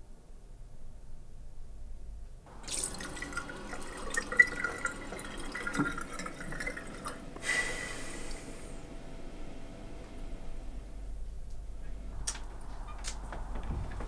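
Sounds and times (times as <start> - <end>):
tap water splashing in sink: 2.6 - 7.2.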